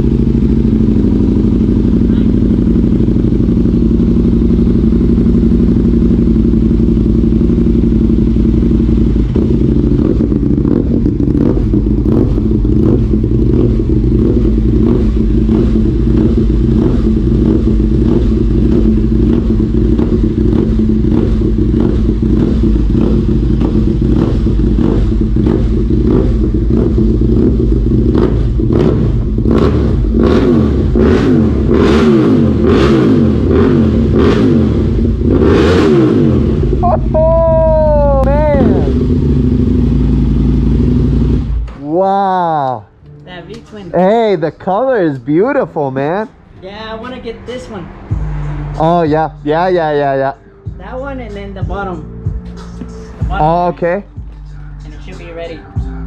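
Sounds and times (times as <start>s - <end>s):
motorcycle engine idling: 0.0s - 35.4s, 36.0s - 42.6s.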